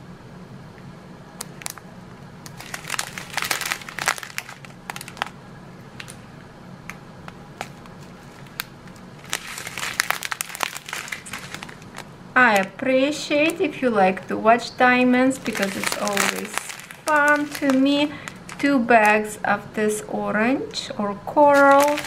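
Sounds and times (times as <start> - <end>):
plastic bags crinkling: 2.4 - 6.2, 7.6 - 12.8, 13.4 - 19.7, 21.4 - 22.0.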